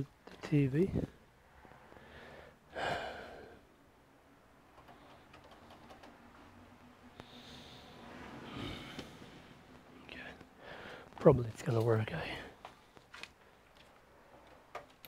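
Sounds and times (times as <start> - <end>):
person breathing out: 1.8 - 3.7, 7.2 - 9.6, 10.6 - 11.1
faint handling noises: 8.9 - 15.0.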